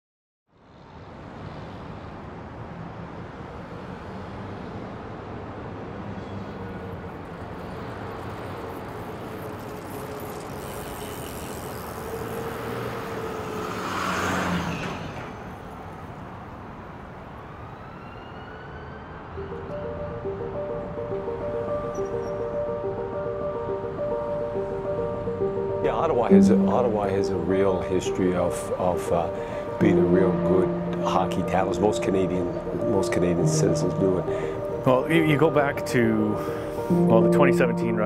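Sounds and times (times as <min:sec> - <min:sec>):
road traffic noise: 0:00.5 - 0:38.0
vehicle passing close by: 0:06.0 - 0:16.0
music tones: 0:19.4 - 0:38.0.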